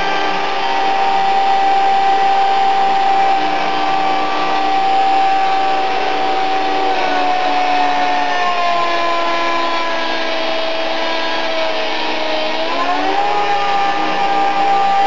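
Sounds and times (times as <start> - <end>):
rc helicopter motor whine: 0.0 - 15.0
rotor noise: 0.0 - 15.0.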